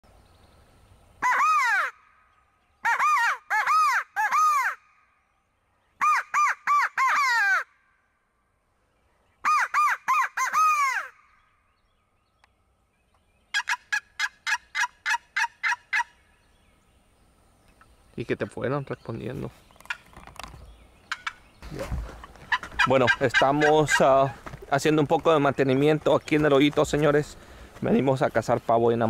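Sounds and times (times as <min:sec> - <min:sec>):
crow call caws: 0:01.2 - 0:02.2, 0:06.0 - 0:07.9, 0:09.4 - 0:11.4
turkey gobble: 0:02.8 - 0:04.8, 0:06.0 - 0:07.7, 0:09.4 - 0:11.3, 0:13.5 - 0:16.2, 0:22.3 - 0:24.4.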